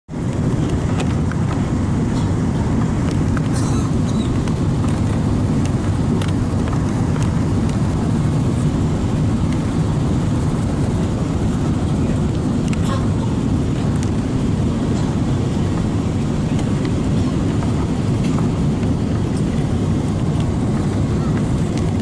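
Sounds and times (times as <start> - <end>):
airplane cabin engine noise: 0.1 - 22.0.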